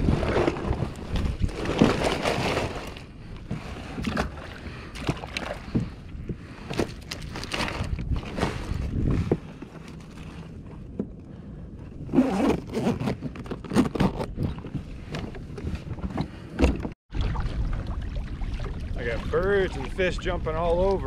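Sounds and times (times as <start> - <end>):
light wind: 0.0 - 21.0
zipper pulled: 12.1 - 14.5
water noise: 14.4 - 21.0.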